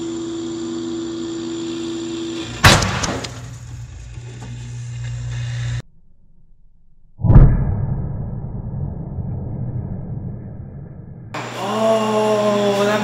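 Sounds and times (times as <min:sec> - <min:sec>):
laser cutter humming: 0:00.0 - 0:05.8, 0:11.4 - 0:13.0
shotgun shell bang: 0:02.6 - 0:03.4.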